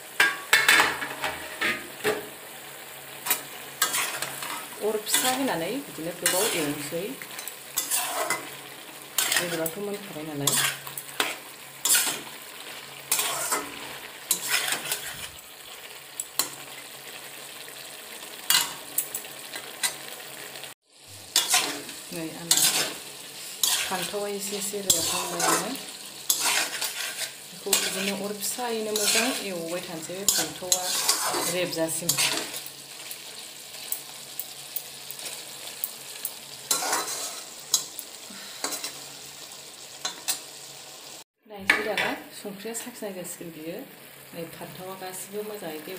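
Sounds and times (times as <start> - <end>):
food sizzling in a wok: 0.0 - 45.9
metal spatula scraping a pan: 3.2 - 15.8, 18.5 - 20.0, 21.3 - 32.8, 36.2 - 38.0, 38.6 - 39.2.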